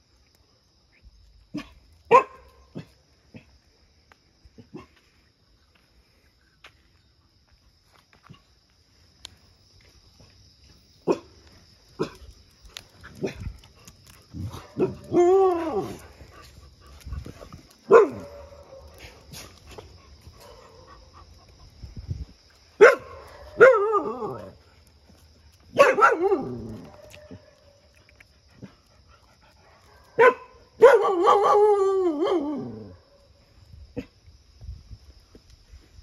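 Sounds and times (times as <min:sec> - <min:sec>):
dogs barking: 0:14.4 - 0:15.9, 0:17.9 - 0:19.2, 0:22.8 - 0:24.4, 0:25.7 - 0:27.7, 0:29.8 - 0:32.4.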